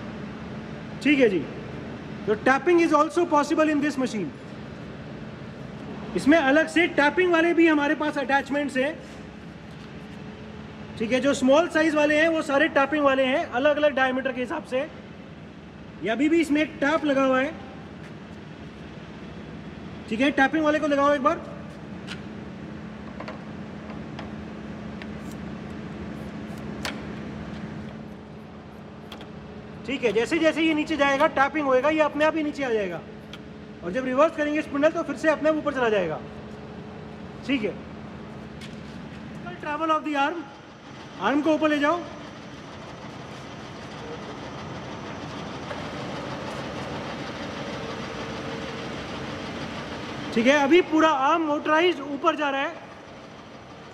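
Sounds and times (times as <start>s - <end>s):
drilling machine humming: 40.5s - 51.1s.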